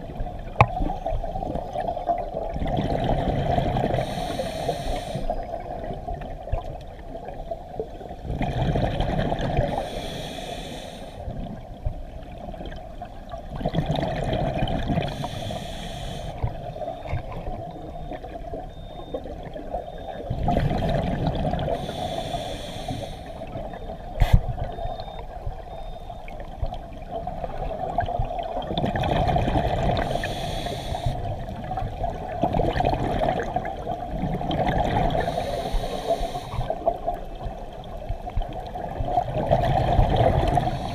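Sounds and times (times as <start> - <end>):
exhaled bubbles rushing: 0.0 - 4.0, 8.2 - 9.7, 13.5 - 15.1, 20.3 - 21.8, 26.6 - 30.1, 31.5 - 35.2, 38.4 - 40.8
scuba regulator breathing underwater: 3.5 - 5.5, 8.5 - 11.3, 14.2 - 16.9, 20.0 - 24.5, 29.7 - 31.6, 34.8 - 37.2, 39.7 - 40.9.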